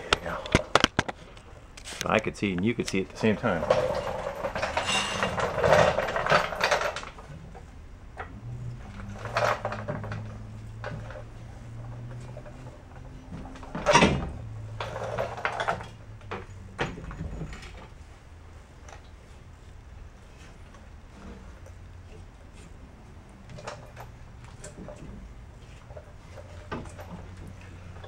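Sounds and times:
leaf spring metal clanks and scrapes: 0:00.0 - 0:07.4.

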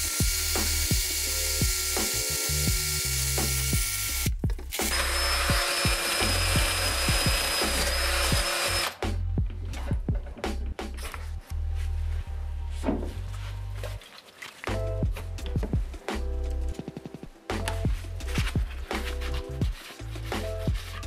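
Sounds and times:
drill motor whirring: 0:00.0 - 0:09.0.

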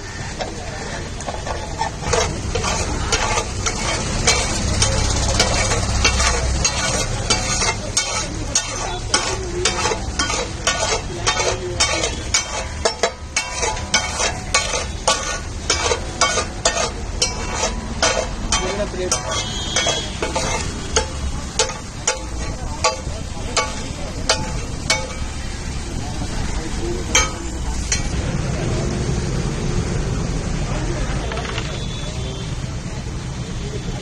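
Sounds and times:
food sizzling: 0:00.0 - 0:28.6
metal spatula scraping griddle: 0:00.1 - 0:25.8, 0:27.1 - 0:28.1.

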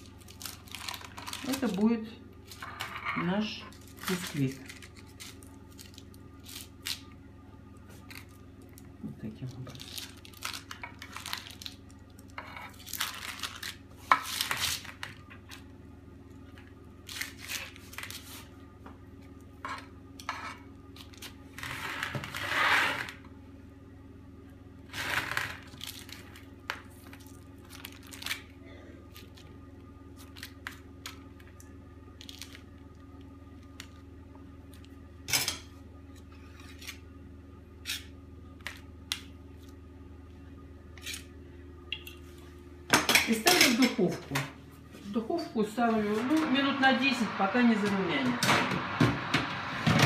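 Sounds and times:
parchment rustling: 0:00.0 - 0:07.0.

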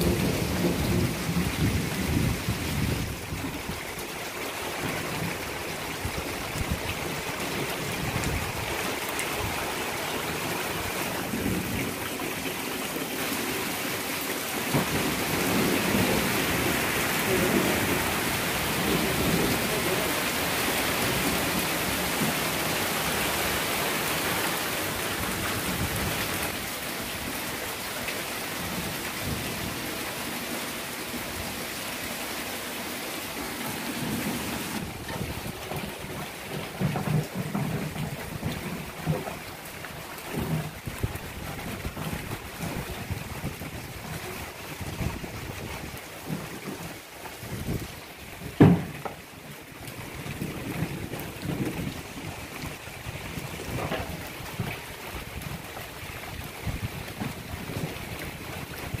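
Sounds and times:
low rumbles of thunder: 0:00.0 - 0:03.8, 0:14.7 - 0:20.2, 0:50.2 - 0:55.6
steady rain on trees: 0:00.0 - 0:59.0.

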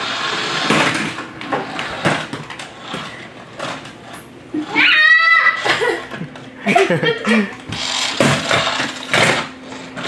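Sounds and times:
toy motor whirring: 0:00.0 - 0:05.7, 0:07.7 - 0:10.0.

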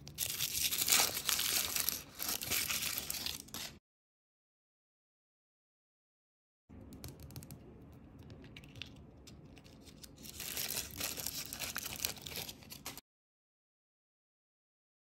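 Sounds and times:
toy wrapper crinkling: 0:00.0 - 0:03.8, 0:09.6 - 0:13.0.

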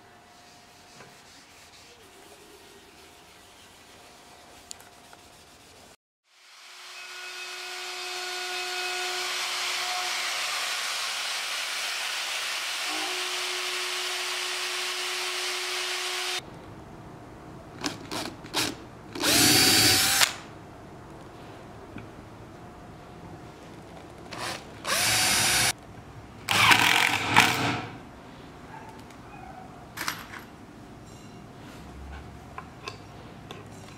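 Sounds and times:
router cutting wood: 0:06.5 - 0:16.4, 0:24.4 - 0:25.7
cordless drill bursts: 0:19.2 - 0:20.3, 0:24.4 - 0:25.7, 0:26.5 - 0:27.7.

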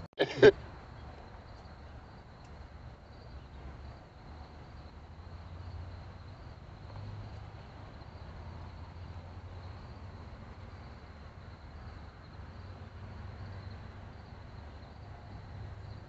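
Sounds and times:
crickets chirring: 0:00.2 - 0:16.0.

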